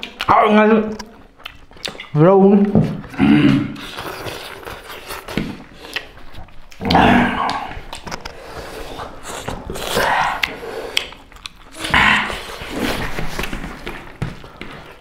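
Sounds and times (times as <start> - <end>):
chewing and smacking: 0.0 - 15.0.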